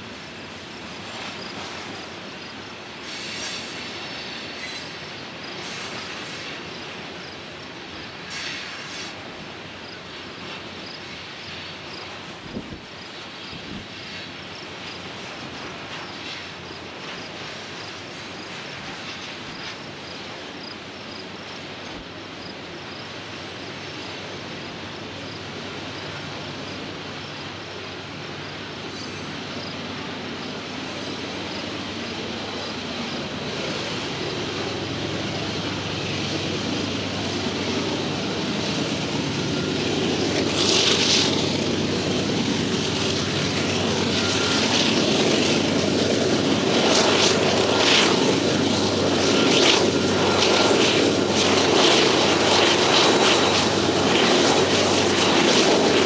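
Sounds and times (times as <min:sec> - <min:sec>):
diesel locomotive engine: 0:00.0 - 0:56.0
train rail noise: 0:00.0 - 0:56.0
hissy bursts: 0:01.5 - 0:06.9, 0:08.2 - 0:09.3.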